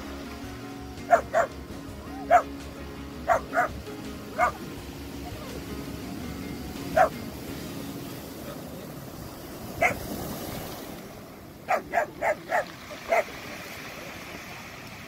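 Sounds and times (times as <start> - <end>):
waves on a pebble shore: 0.0 - 15.0
dog barking: 1.1 - 1.5, 2.2 - 2.5, 3.3 - 3.7, 4.4 - 4.6, 9.8 - 10.0, 11.7 - 13.3.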